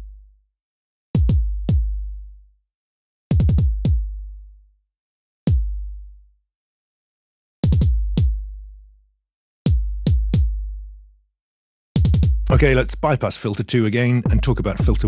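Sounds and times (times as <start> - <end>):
synthesized kick drum thumps: 1.2 - 2.0, 3.4 - 4.1, 7.6 - 8.5, 9.7 - 10.7, 12.0 - 13.2, 14.3 - 15.0.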